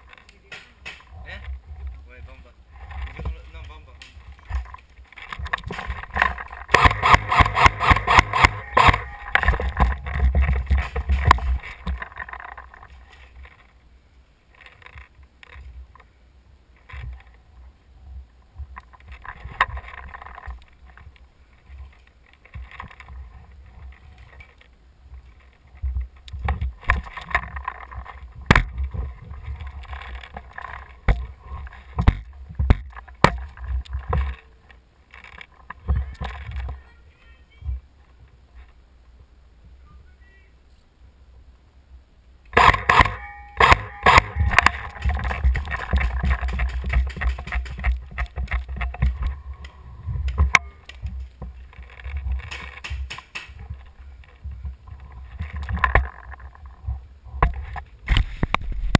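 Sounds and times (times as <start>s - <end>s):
wood and debris knocks: 42.6s - 49.3s
footsteps crunching on rubble: 44.2s - 56.5s.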